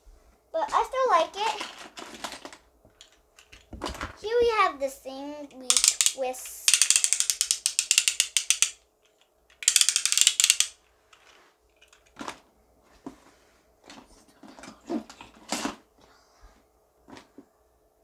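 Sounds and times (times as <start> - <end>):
fidget toy clicking like a ratchet: 5.5 - 8.8, 9.5 - 10.8.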